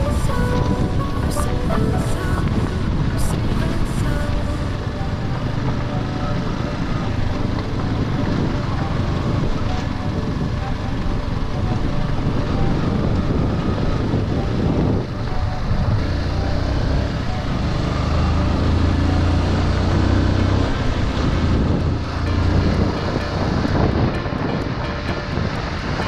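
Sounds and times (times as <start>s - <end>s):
motorcycle engine running: 0.0s - 26.0s
wind rushing over microphone: 0.0s - 26.0s.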